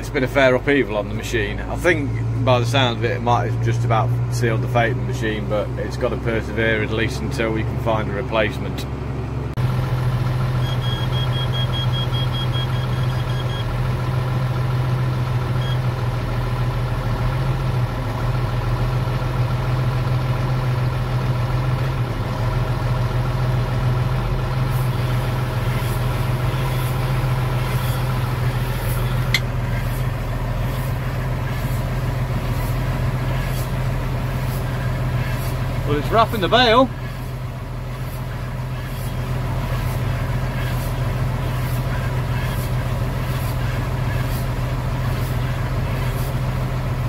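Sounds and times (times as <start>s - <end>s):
tractor engine running: 0.0s - 47.0s
short high beeps: 10.6s - 13.7s.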